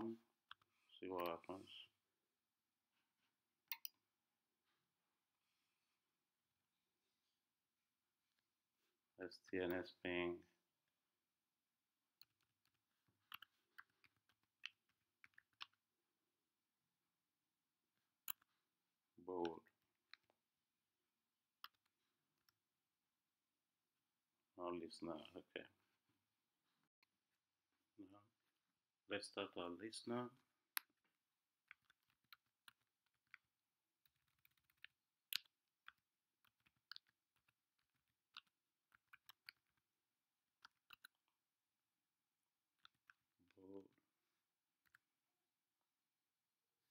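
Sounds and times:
faint typing on keyboard: 30.2 - 41.5, 42.5 - 44.1.

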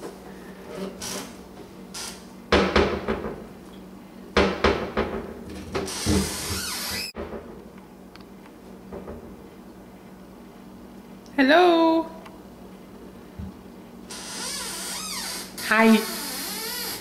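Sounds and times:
cabinet door knocking against frame: 2.5 - 3.4, 4.4 - 5.3.

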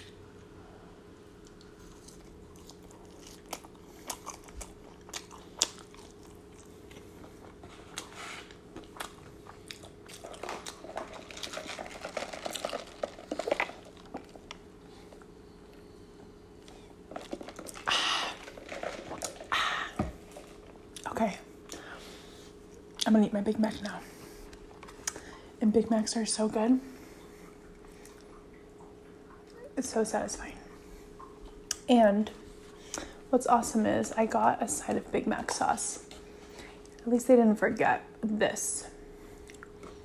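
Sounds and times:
chewing with soft crunches: 0.0 - 25.6, 27.0 - 29.8, 39.2 - 40.0.

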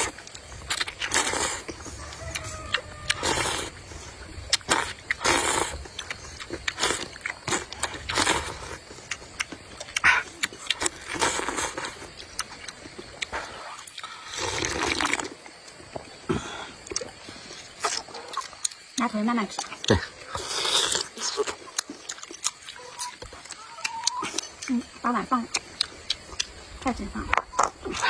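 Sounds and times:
chewing: 0.0 - 28.0
person slurping noodles: 0.7 - 1.8, 3.2 - 3.8, 4.6 - 5.8, 10.0 - 12.0, 13.3 - 15.3, 20.3 - 21.5
mouth clicks: 16.8 - 28.0.

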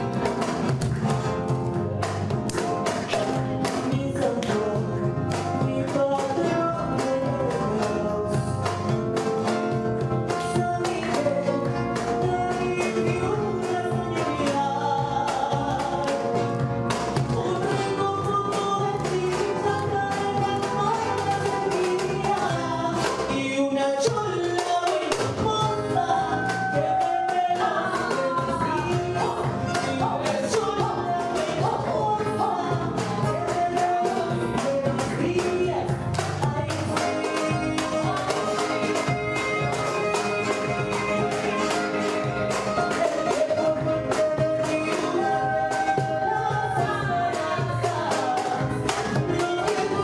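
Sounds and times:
cajon percussion beat: 0.0 - 50.0
guitar: 0.0 - 50.0
voices singing: 25.6 - 50.0.

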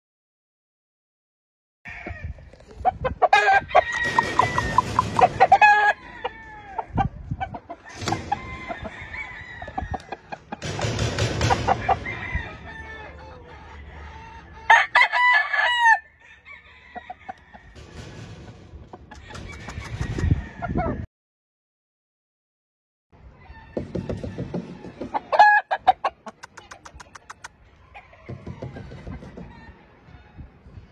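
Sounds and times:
roosters crowing: 1.9 - 21.1, 23.2 - 26.1, 27.2 - 30.9
chickens clucking: 2.3 - 15.0, 24.1 - 30.5.

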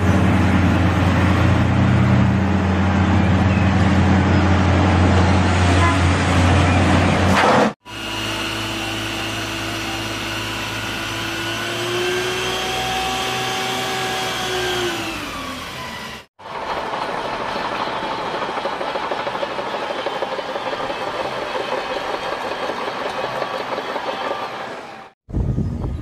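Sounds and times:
bulldozer diesel engine: 0.0 - 25.2
truck engine whining: 0.0 - 25.2
steel tracks clattering: 16.4 - 25.2.

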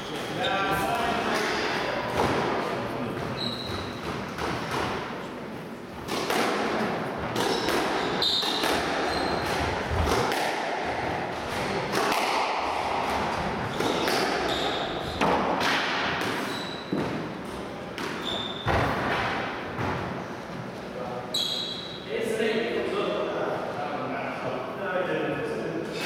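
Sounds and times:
squash ball hits: 0.1 - 5.2, 6.0 - 20.2
shoes squeaking on wooden floor: 3.1 - 4.4, 7.3 - 9.7, 13.6 - 15.2, 16.4 - 17.2, 18.2 - 18.9, 21.3 - 22.0.

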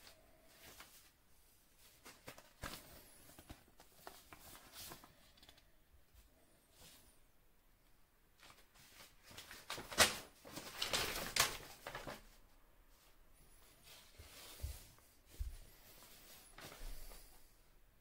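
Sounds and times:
paper rustling and crinkling: 0.0 - 1.2, 1.8 - 5.7, 8.4 - 12.5.

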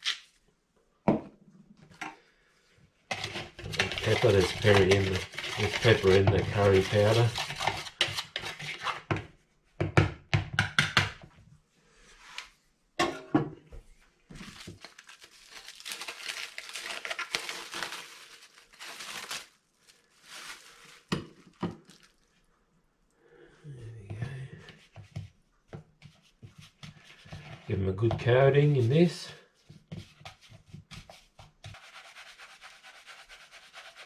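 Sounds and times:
plastic bag crinkling: 14.3 - 22.3.

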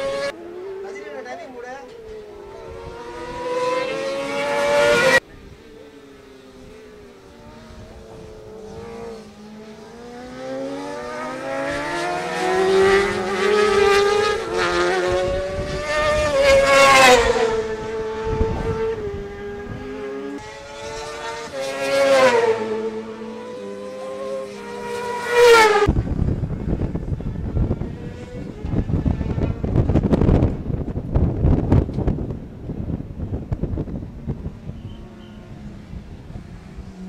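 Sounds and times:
racing motorcycles passing by: 0.0 - 37.0
wind on microphone: 2.0 - 5.7, 11.6 - 23.1, 25.4 - 37.0.

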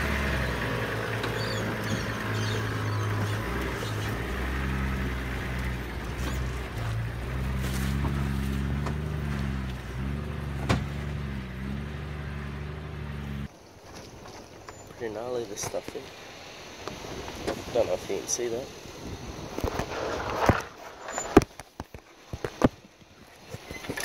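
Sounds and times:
engine revving under load: 0.0 - 13.5.

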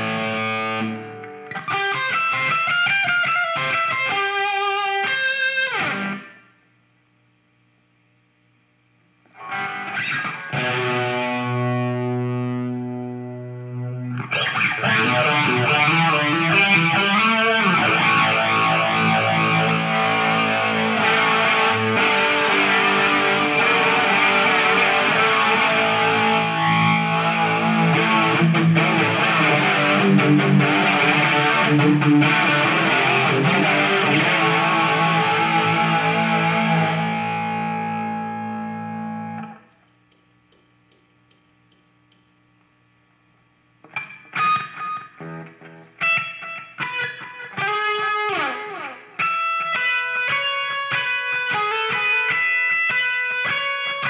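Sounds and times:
picked guitar notes: 0.0 - 6.4, 9.3 - 39.7, 43.8 - 54.0
distorted electric guitar: 0.0 - 6.7, 9.2 - 54.0
faint amp hum: 0.0 - 54.0.

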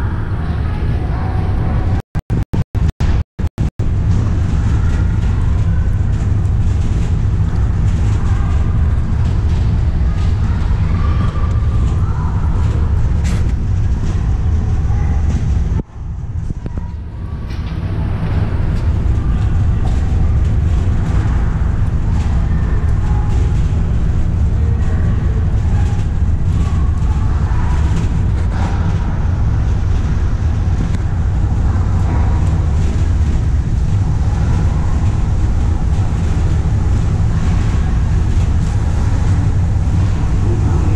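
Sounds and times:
ice rink low rumble: 0.0 - 40.9.

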